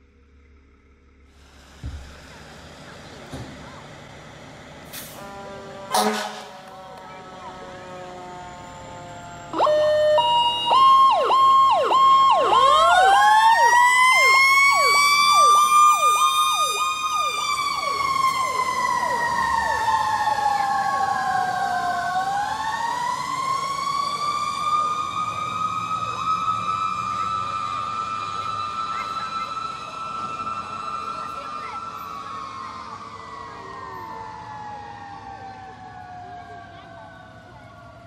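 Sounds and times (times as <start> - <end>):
siren wailing tone: 5.2 - 38.0
siren fast repeating yelp: 9.5 - 21.6.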